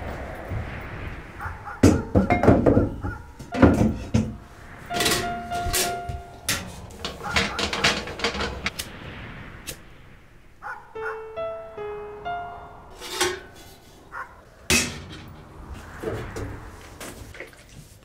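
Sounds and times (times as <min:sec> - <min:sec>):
objects knocking on wooden shelf: 0:01.8 - 0:04.4.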